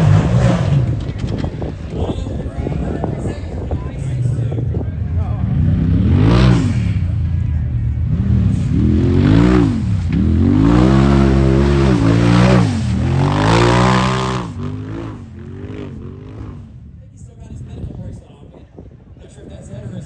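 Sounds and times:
utility vehicle engine revving: 0.0s - 2.0s, 4.5s - 16.9s.

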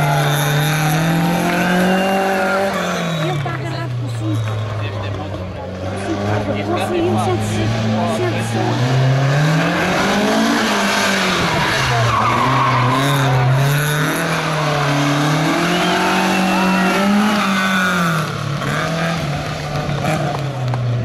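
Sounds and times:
car engine revving: 0.0s - 21.0s
tyres squealing: 11.6s - 17.8s.

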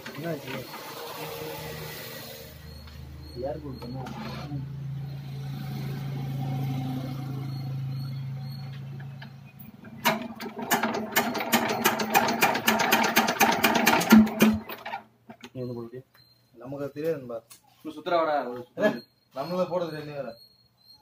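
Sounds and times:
diesel engine cranking and knocking: 5.6s - 15.6s.

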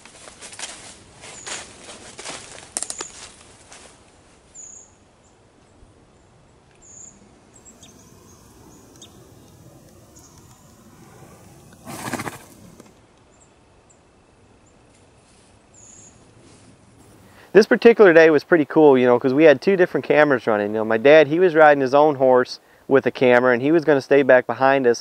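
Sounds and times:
hooves stepping through dry leaves: 0.0s - 4.1s, 7.7s - 12.9s
short high bird chirps: 6.8s - 11.9s
loud rustling burst: 7.2s - 13.0s.

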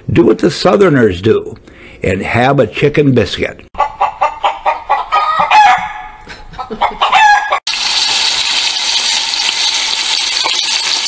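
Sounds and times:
chicken clucking: 3.8s - 7.6s
rooster crowing: 4.3s - 7.6s.

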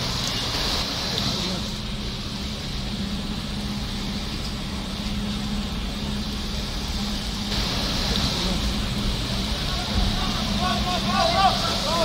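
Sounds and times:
car engine hum: 0.0s - 12.0s
rain and water hiss: 0.0s - 12.0s.

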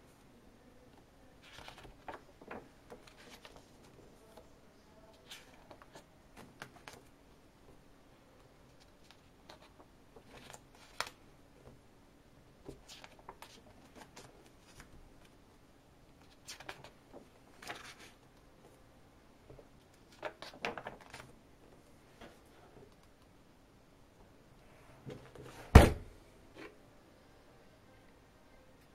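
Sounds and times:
paper pages rustling and flapping: 1.4s - 4.4s, 8.7s - 11.2s, 12.6s - 15.4s, 16.2s - 18.2s, 20.0s - 21.3s.

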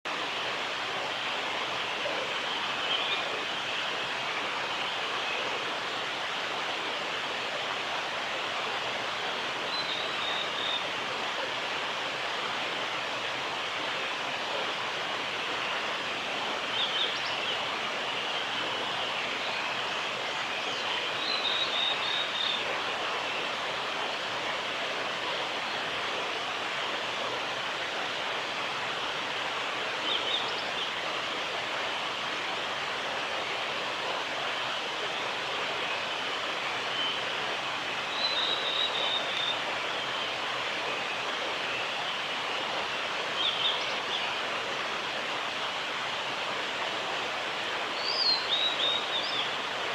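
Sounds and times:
steady rushing hiss: 0.1s - 49.9s.

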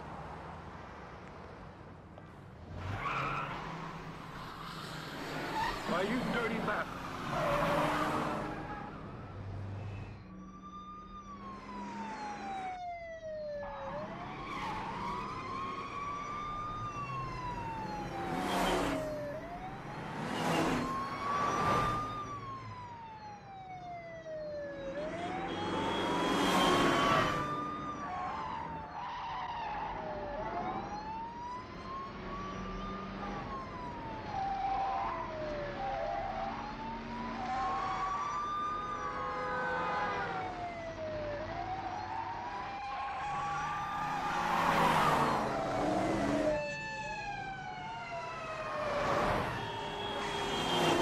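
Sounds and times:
car engines running: 0.0s - 10.5s
police siren wailing: 2.8s - 51.0s.

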